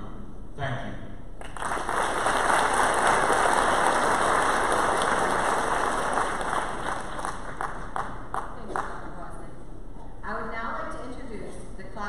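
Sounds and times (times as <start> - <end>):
audience applause: 1.4 - 9.1.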